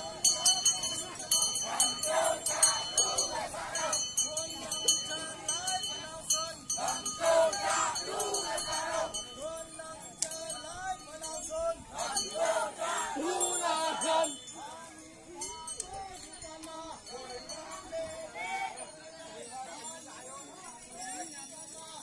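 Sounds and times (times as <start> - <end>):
men chanting: 0.0 - 9.4, 11.5 - 15.7
high jingling: 0.0 - 22.0.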